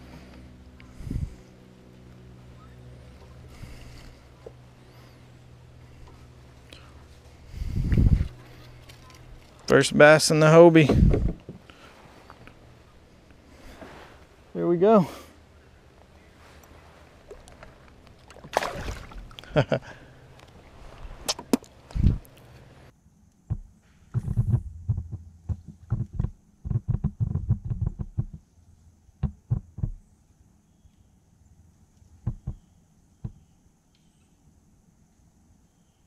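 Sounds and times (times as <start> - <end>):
fish splashing into water: 18.2 - 19.5
knocks on kayak hull: 23.5 - 28.4, 32.2 - 32.6.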